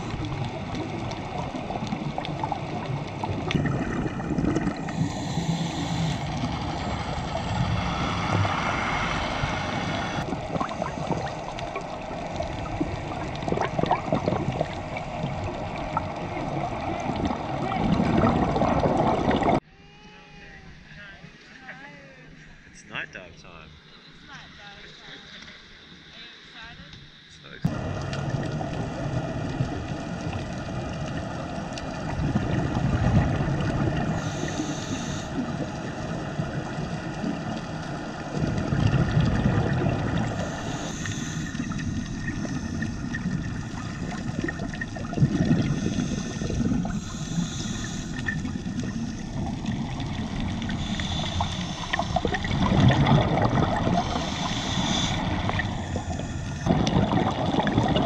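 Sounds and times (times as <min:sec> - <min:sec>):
exhaled bubbles rushing: 0:00.0 - 0:19.6, 0:27.7 - 0:58.0
scuba regulator inhale hiss: 0:04.9 - 0:06.4, 0:34.0 - 0:35.6, 0:40.3 - 0:43.8, 0:45.5 - 0:49.4, 0:50.6 - 0:52.6, 0:53.9 - 0:56.7.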